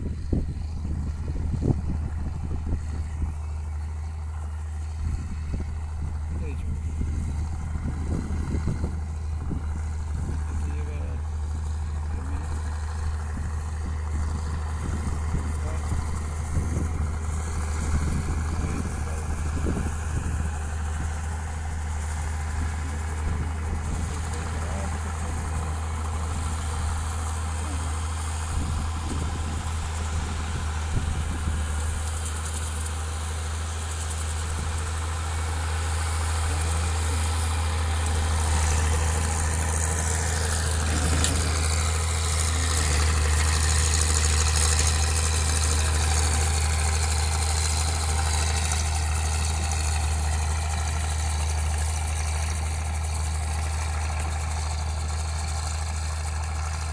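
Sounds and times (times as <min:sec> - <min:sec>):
tractor diesel engine running: 0:00.0 - 0:56.9.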